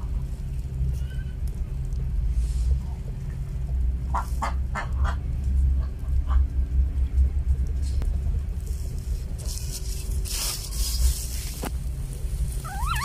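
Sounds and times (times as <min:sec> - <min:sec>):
low rumble: 0:00.0 - 0:13.0
puppies squeaking: 0:12.6 - 0:13.0.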